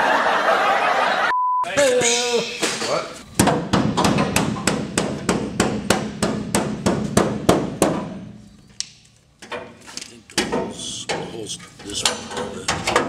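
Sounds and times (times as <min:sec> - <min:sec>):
hammer tapping sheet steel: 0:03.4 - 0:08.2.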